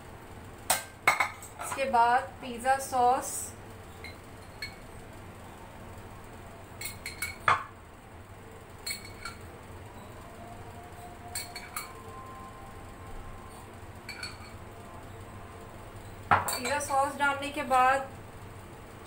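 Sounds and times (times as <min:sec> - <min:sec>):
glass clinking: 0:04.0 - 0:04.8, 0:06.8 - 0:07.7, 0:08.8 - 0:10.1, 0:11.3 - 0:12.2, 0:14.0 - 0:14.6, 0:16.3 - 0:17.1.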